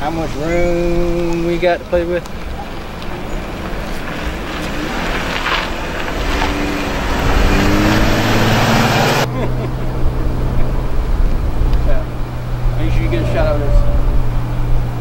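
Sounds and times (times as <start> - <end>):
minivan driving past: 0.0 - 15.0.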